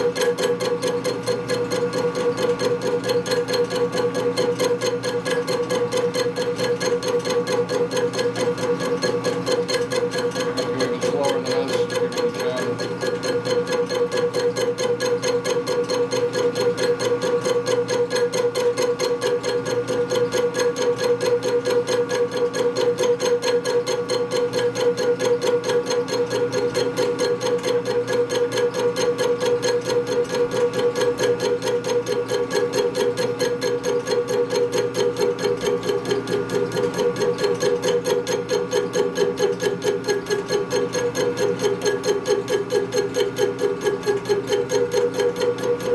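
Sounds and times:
machine tool cutting metal: 0:00.0 - 0:45.9.

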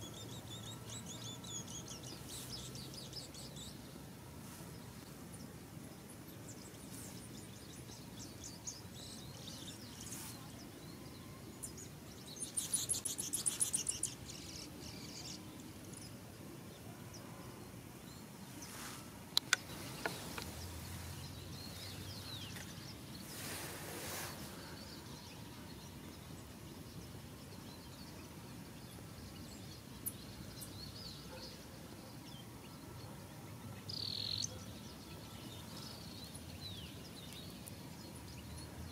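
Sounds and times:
small birds chirping: 0:00.0 - 0:38.9
brief hiss: 0:18.6 - 0:21.0, 0:23.2 - 0:24.8
sharp clicks: 0:19.3 - 0:20.5.

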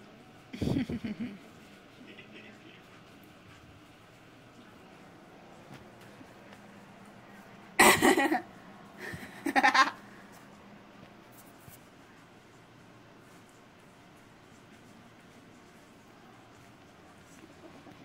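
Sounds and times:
person laughing: 0:00.6 - 0:01.4, 0:07.8 - 0:08.4, 0:09.0 - 0:10.0.

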